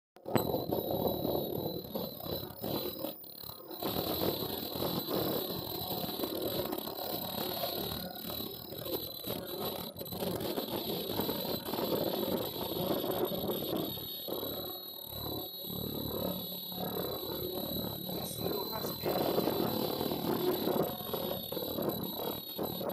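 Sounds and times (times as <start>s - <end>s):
high machine whine: 0.2s - 22.9s
machine mechanical clatter: 0.2s - 22.9s.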